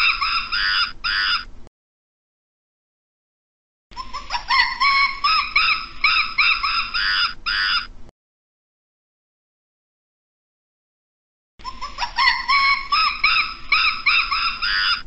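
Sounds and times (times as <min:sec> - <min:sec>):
primate high-pitched calls: 0:00.0 - 0:01.5, 0:03.9 - 0:07.9, 0:11.6 - 0:15.0.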